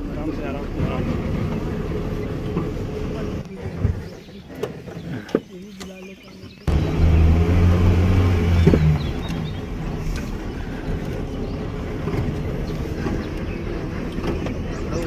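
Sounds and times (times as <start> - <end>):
vehicle engine on dirt track: 0.0 - 15.0.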